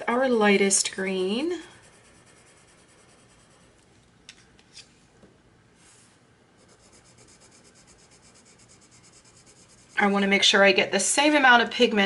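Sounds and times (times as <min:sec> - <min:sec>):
pencil scratching on paper: 0:01.6 - 0:03.7, 0:06.6 - 0:10.1.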